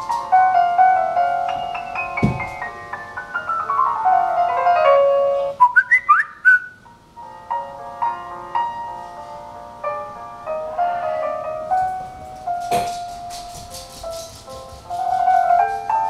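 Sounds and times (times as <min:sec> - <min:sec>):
piano music: 0:00.0 - 0:16.0
low thud: 0:02.2 - 0:02.6
short rising whistled notes: 0:05.6 - 0:06.8.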